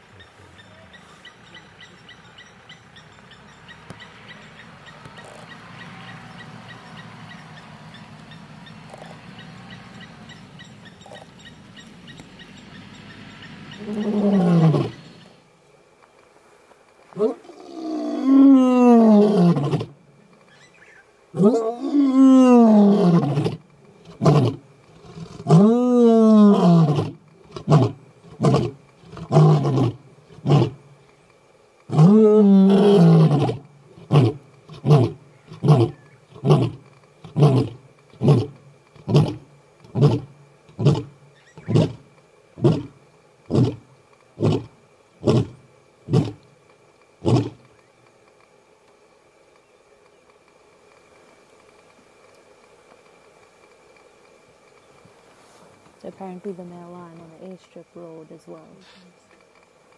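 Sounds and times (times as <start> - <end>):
lion roaring: 13.8 - 15.0, 21.4 - 30.8, 31.9 - 42.0, 42.6 - 43.8, 47.2 - 47.6.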